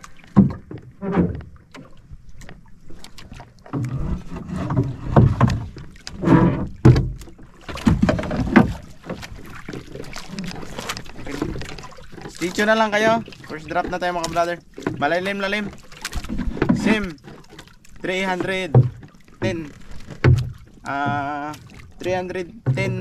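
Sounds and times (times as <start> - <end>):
water slapping against boat hull: 0.0 - 23.0.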